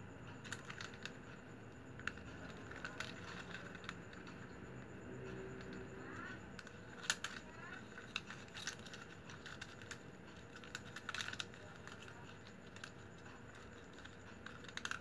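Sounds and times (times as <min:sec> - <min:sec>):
plastic strips clicking and scraping: 0:00.3 - 0:04.6, 0:05.2 - 0:15.0.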